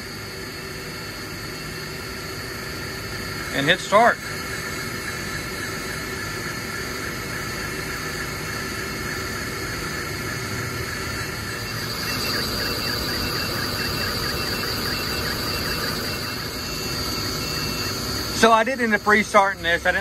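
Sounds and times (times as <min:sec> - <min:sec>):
laser engraver hissing: 0:00.0 - 0:20.0
motor whine: 0:00.0 - 0:20.0
short repeated tones: 0:11.2 - 0:20.0.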